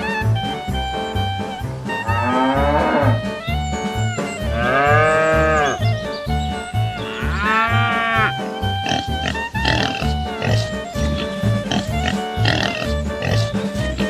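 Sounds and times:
background music with steady beat: 0.0s - 14.0s
cow mooing: 2.0s - 3.3s, 4.5s - 5.8s, 7.0s - 13.5s.

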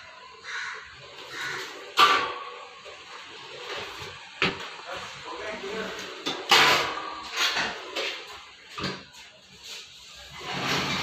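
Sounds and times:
cabinet drawers sliding: 10.3s - 11.0s.

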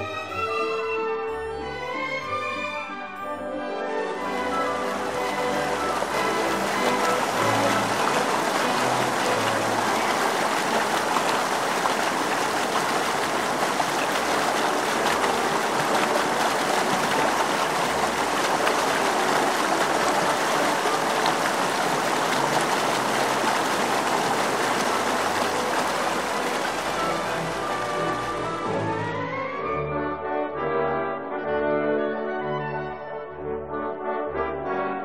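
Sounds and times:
stream rushing over rocks: 4.2s - 28.9s.

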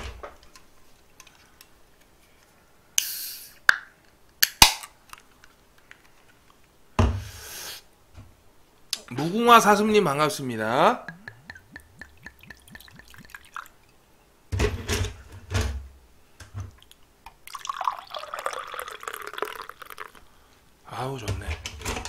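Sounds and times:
liquid glugging from a bottle: 11.1s - 13.8s
beer pouring and fizzing: 11.5s - 14.0s, 16.7s - 20.3s.

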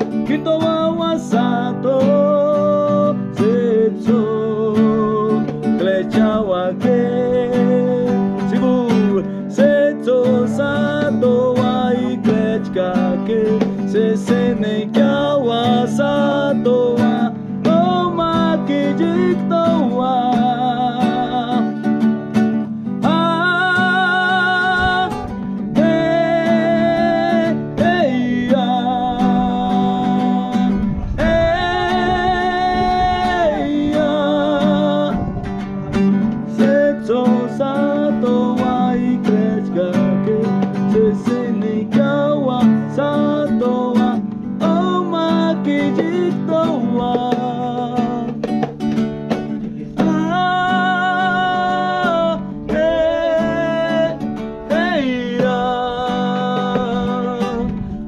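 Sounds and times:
man singing: 0.0s - 58.0s
strummed acoustic guitar: 0.0s - 58.0s.

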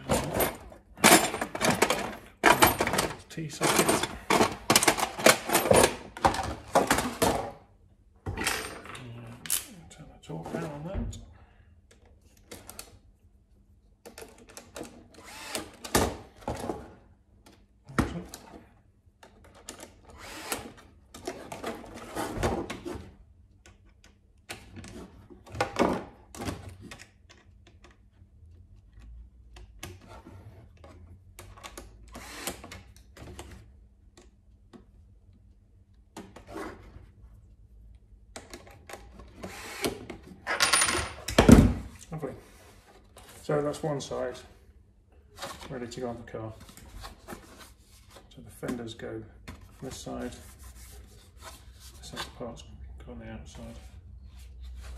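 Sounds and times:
plastic parts clicking and knocking: 0.1s - 7.5s.

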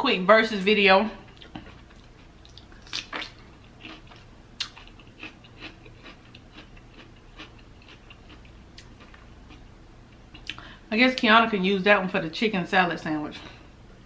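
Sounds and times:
mouth chewing wet smacks: 1.3s - 9.6s.

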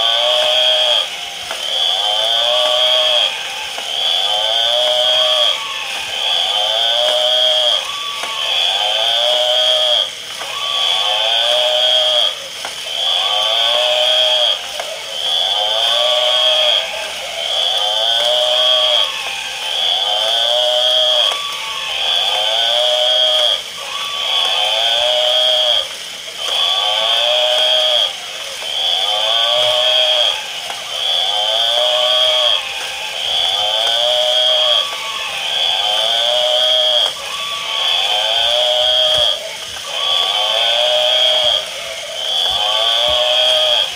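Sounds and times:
electronic toy sound effect: 0.0s - 43.9s.

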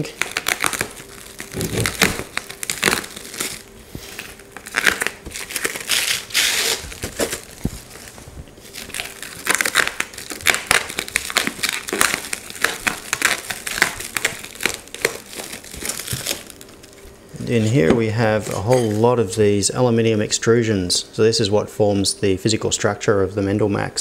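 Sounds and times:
plastic wrap crinkling: 0.0s - 19.3s.

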